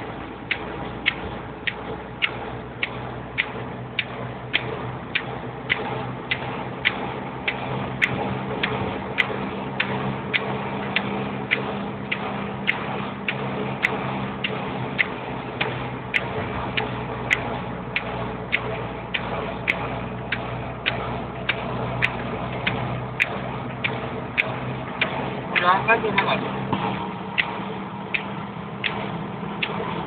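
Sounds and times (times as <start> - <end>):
engine low hum: 0.0 - 30.0
steady ticking: 0.0 - 30.0.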